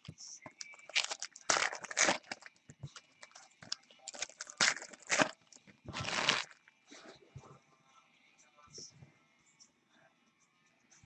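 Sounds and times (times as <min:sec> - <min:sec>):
cards and foil packs rustling: 0:00.5 - 0:06.6.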